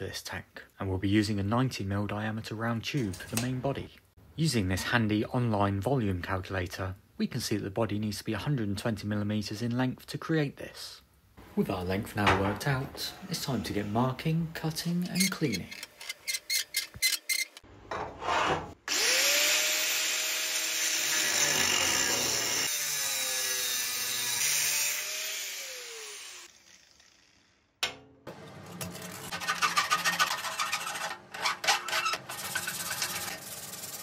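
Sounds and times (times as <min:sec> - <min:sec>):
angle grinder cutting metal tube: 0:18.9 - 0:27.6, 0:28.8 - 0:34.0.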